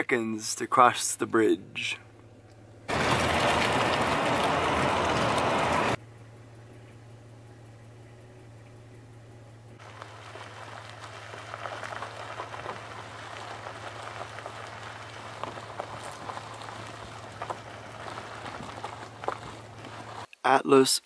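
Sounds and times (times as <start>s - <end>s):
tyres crunching on gravel: 0.5s - 6.0s, 9.2s - 20.3s
low engine hum: 1.2s - 20.3s.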